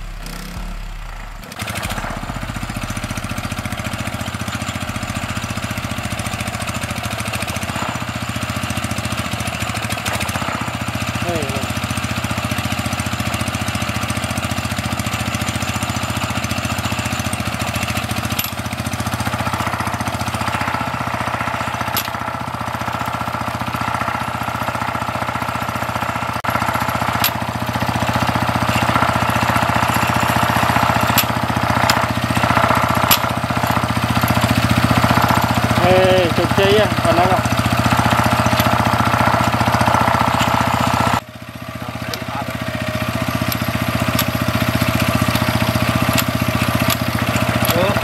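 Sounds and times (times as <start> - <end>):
small engine running: 0.0 - 48.0
hand tools clicking on metal: 21.8 - 22.3, 27.1 - 27.5, 28.6 - 35.6, 38.1 - 39.4, 43.2 - 48.0.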